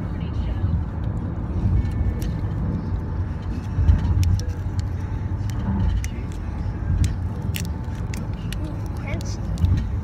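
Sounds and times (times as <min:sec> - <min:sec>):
car cabin rumble: 0:00.0 - 0:10.0
foil candy wrapper crinkling: 0:04.1 - 0:09.8.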